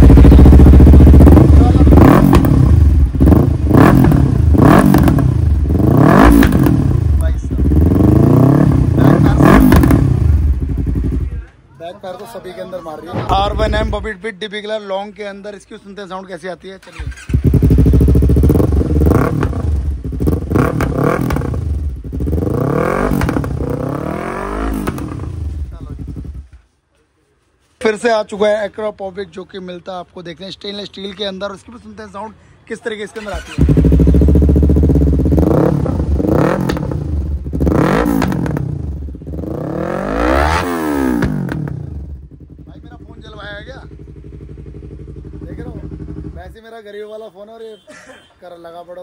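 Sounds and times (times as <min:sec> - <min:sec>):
motorcycle engine revving: 0:00.0 - 0:11.4, 0:16.9 - 0:26.5, 0:33.2 - 0:46.6
exhaust backfire pops: 0:02.2 - 0:05.3, 0:06.1 - 0:06.9, 0:09.5 - 0:10.2, 0:23.0 - 0:23.6, 0:24.6 - 0:25.3, 0:35.8 - 0:37.0, 0:38.0 - 0:38.8, 0:41.0 - 0:42.0
exhaust pops: 0:23.0 - 0:23.6, 0:24.7 - 0:25.3, 0:38.0 - 0:38.8, 0:41.1 - 0:42.0.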